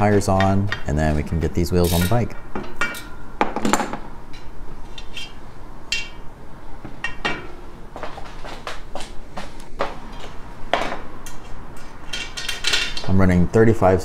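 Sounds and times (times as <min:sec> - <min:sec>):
metal tools clinking: 0:01.8 - 0:03.2, 0:12.0 - 0:13.2.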